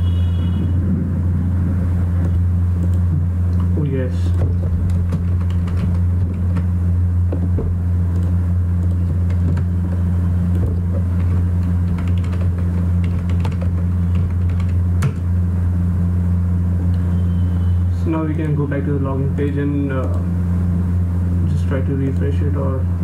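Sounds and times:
steady low hum: 0:00.0 - 0:23.0
keyboard typing: 0:02.2 - 0:06.7, 0:07.3 - 0:15.3.

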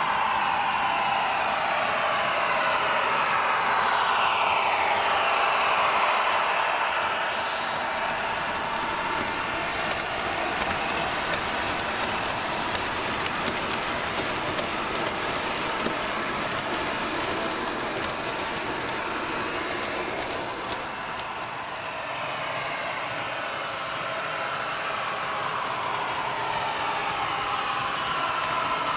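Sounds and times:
model train wheels hissing on rails: 0:00.0 - 0:28.9
wheel clicks at rail joints: 0:07.0 - 0:21.5.

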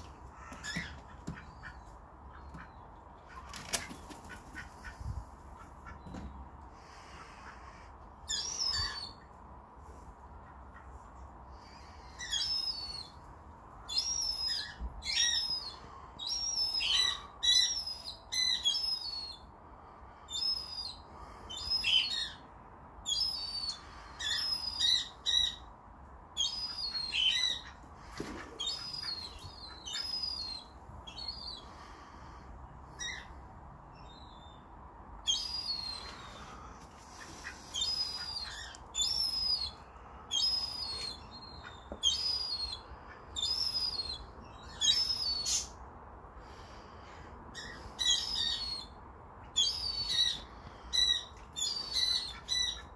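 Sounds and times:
gull high-pitched peeps: 0:06.8 - 0:09.2, 0:28.5 - 0:32.0, 0:35.3 - 0:45.8, 0:47.6 - 0:52.9.

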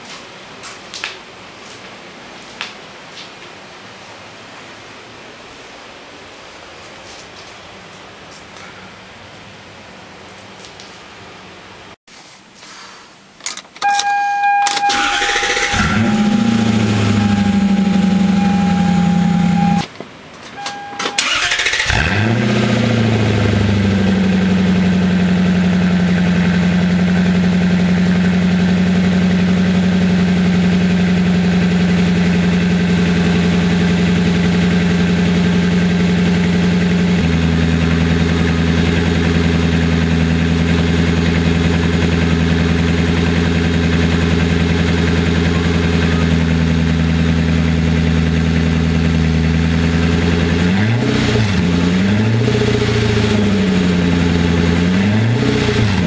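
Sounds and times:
car engine starting and idling: 0:13.4 - 0:56.0.

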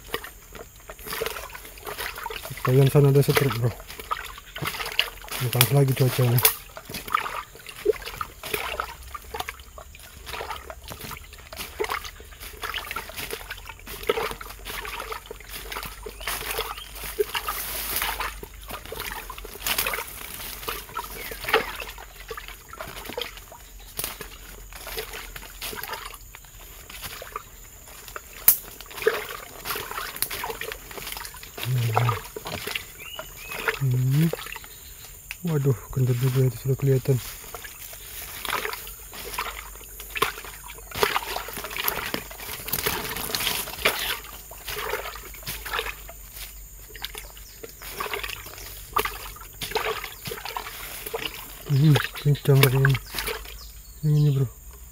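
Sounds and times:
brushing past undergrowth: 0:00.0 - 0:54.3
footsteps crunching through dry leaves: 0:00.0 - 0:54.9
voice: 0:02.5 - 0:03.8, 0:05.4 - 0:06.5, 0:31.6 - 0:32.2, 0:33.8 - 0:34.4, 0:35.4 - 0:37.3, 0:51.7 - 0:53.0, 0:54.0 - 0:54.5.

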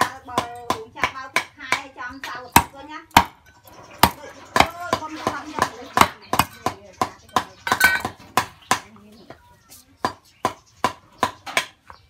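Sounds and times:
cleaver chopping on wooden block: 0:00.0 - 0:03.4.

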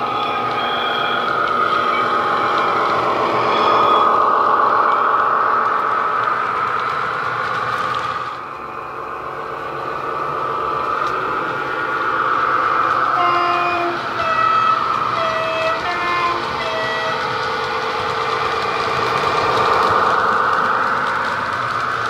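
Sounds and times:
model locomotive diesel engine running: 0:00.0 - 0:22.0
two-tone horn blasts: 0:13.1 - 0:17.2.

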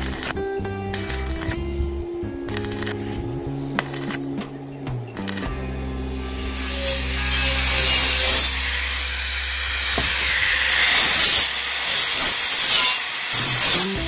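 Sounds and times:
steady low hum: 0:00.0 - 0:13.3
angle grinder grinding metal: 0:05.2 - 0:14.0.

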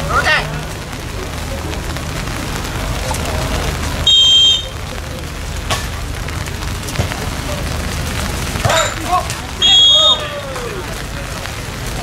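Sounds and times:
crowd noise: 0:00.0 - 0:12.0
referee's whistle blast: 0:04.1 - 0:04.7, 0:09.6 - 0:10.3.

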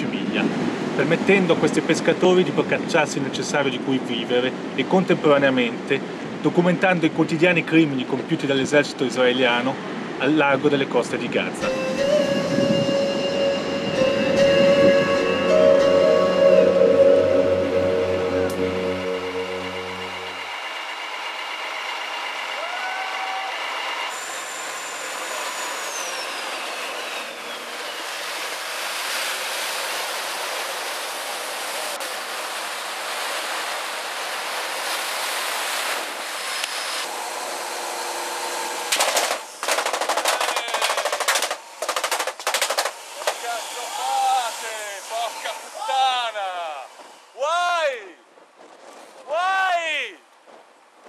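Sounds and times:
wind and sea water rushing: 0:00.0 - 0:06.7, 0:11.5 - 0:20.6, 0:28.0 - 0:38.7
loud sharp bangs: 0:38.9 - 0:43.5.

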